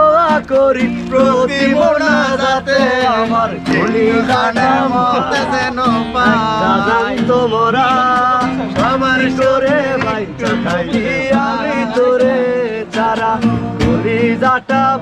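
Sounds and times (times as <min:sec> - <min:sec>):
folk-style song: 0:00.0 - 0:15.0
wavering lead melody: 0:01.7 - 0:12.5.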